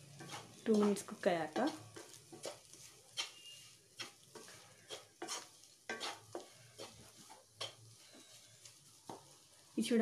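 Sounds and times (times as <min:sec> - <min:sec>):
spatula scraping pan: 0:00.0 - 0:09.6.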